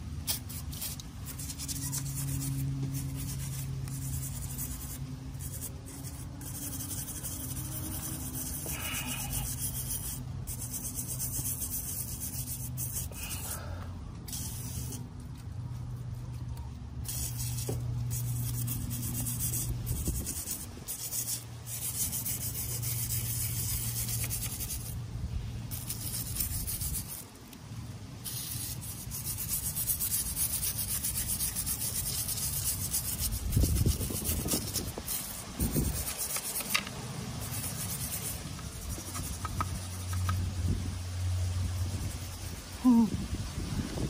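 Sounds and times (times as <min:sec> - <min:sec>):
hand scrubbing metal case: 0:28.8 - 0:40.4.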